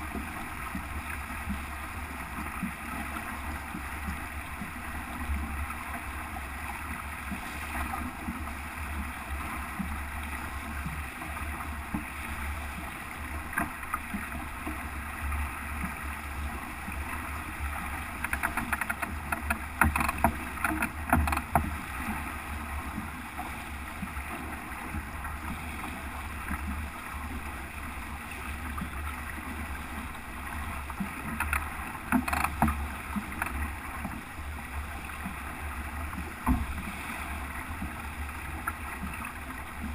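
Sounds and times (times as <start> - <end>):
water rushing along hull: 0.0 - 39.9
slaps and knocks on boat: 13.5 - 14.3, 18.2 - 21.8, 31.0 - 34.2, 36.4 - 36.8.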